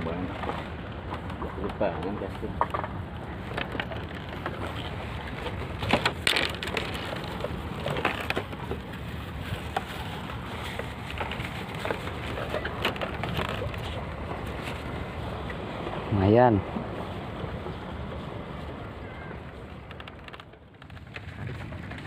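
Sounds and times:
hands handling fish and line: 0.2s - 16.0s.

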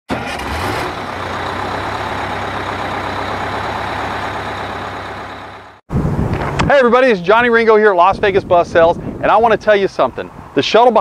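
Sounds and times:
heavy vehicle engine running: 0.1s - 5.8s.

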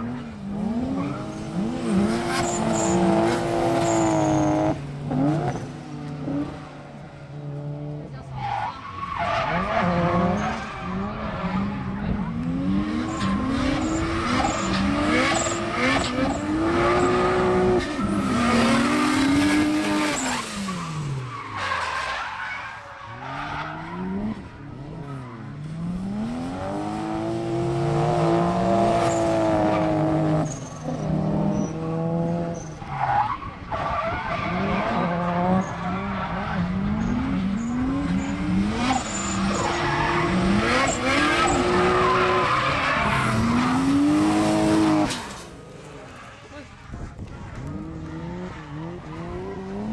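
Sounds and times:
car engines revving: 0.0s - 49.9s
tyres screeching: 37.0s - 46.8s.

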